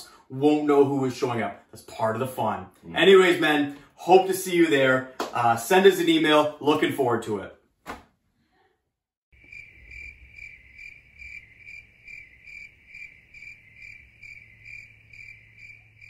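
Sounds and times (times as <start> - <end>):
cricket chirping: 9.4 - 16.0.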